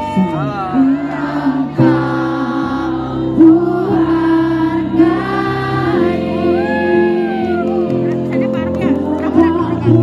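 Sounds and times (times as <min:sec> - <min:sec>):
musical accompaniment: 0:00.0 - 0:10.0
woman singing a slow song: 0:08.6 - 0:10.0.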